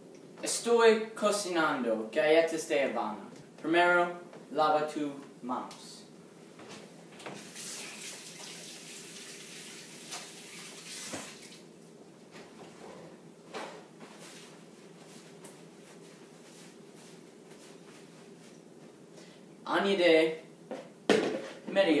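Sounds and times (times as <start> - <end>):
faucet water running into sink: 7.4 - 11.6.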